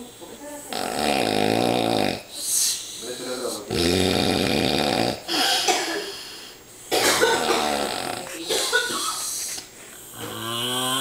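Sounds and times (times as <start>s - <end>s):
man snoring: 0.7s - 2.4s, 3.7s - 5.6s, 7.4s - 8.5s, 10.1s - 11.0s.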